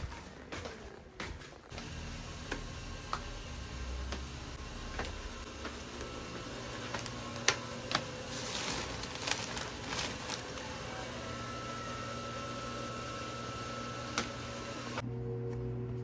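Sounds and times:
plastic wrapping crinkling: 0:06.8 - 0:11.1
low hum: 0:14.9 - 0:16.0.

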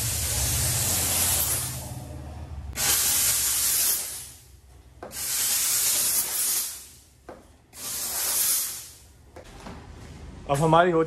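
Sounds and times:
steam cleaner hissing: 0:00.0 - 0:01.8, 0:02.8 - 0:04.4, 0:05.1 - 0:07.0, 0:07.8 - 0:09.0.

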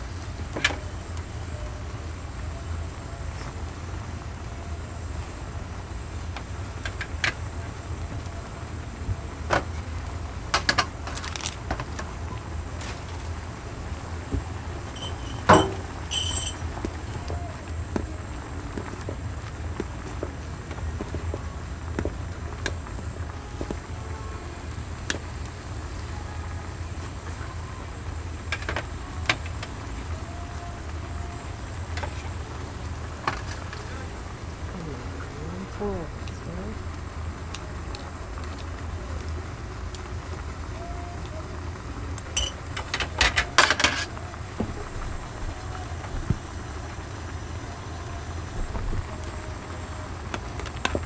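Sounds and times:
sharp clinks and clacks: 0:15.0 - 0:16.6
steady low rumble: 0:30.9 - 0:40.7.

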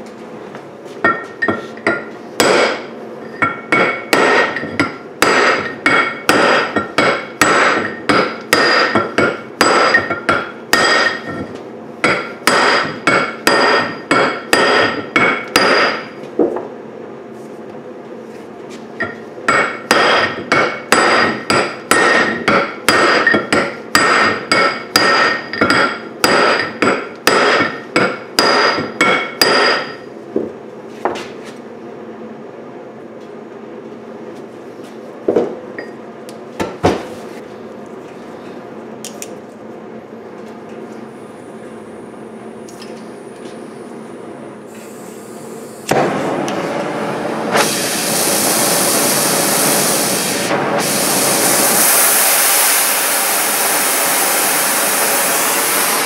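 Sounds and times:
hammer striking metal punch: 0:01.1 - 0:16.2, 0:19.0 - 0:30.0.

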